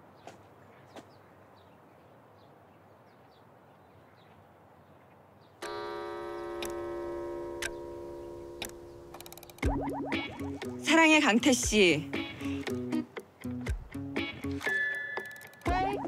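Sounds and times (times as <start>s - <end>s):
sustained musical chord: 5.6s - 9.6s
high faint chirps: 5.6s - 10.8s.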